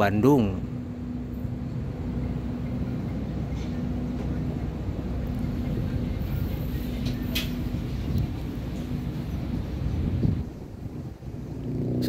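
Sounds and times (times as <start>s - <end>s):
train diesel engines idling: 0.0s - 11.5s.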